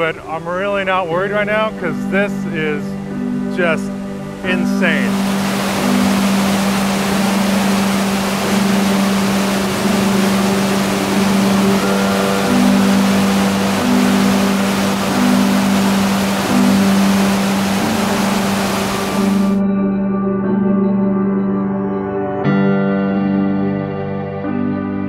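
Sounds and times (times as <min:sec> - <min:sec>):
ambient background music: 0:00.0 - 0:25.0
waterfall rushing: 0:03.6 - 0:19.6.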